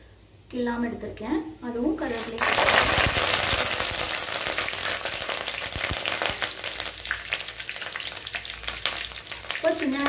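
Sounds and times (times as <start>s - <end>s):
chillies sizzling in hot oil: 2.0s - 10.0s.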